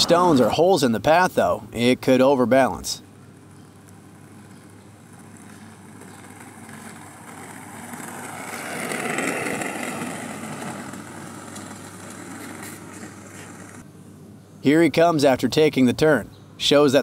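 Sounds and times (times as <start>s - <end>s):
small wheels rolling on asphalt: 1.8s - 13.9s.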